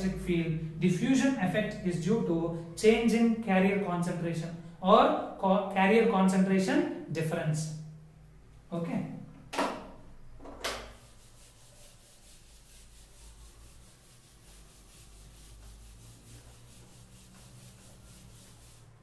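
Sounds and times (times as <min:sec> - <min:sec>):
duster rubbing on whiteboard: 0:10.9 - 0:19.0.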